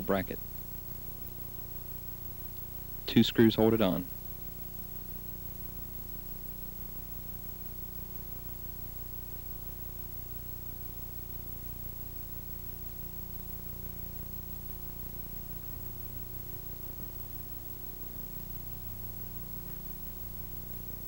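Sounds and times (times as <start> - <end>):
tape hiss: 0.0 - 21.0.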